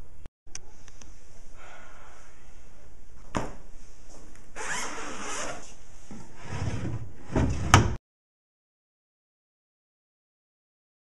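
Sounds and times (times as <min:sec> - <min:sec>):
wooden drawer sliding: 0:06.4 - 0:08.0.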